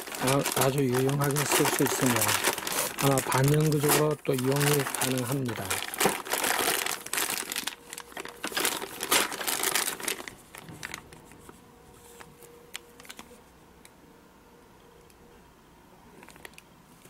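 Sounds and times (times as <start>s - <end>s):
plastic bag crinkling: 0.0s - 11.2s.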